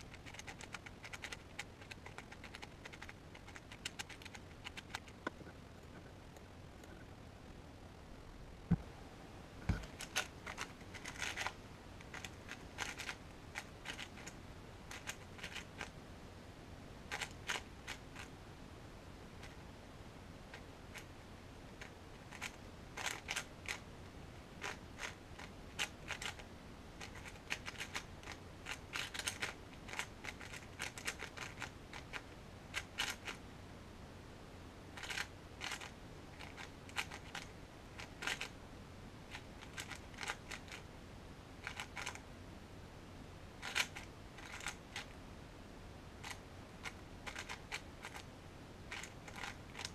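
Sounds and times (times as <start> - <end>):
puzzle cube layers clicking: 0.1 - 5.2, 9.9 - 15.9, 27.0 - 32.2, 35.0 - 38.5, 43.6 - 45.1.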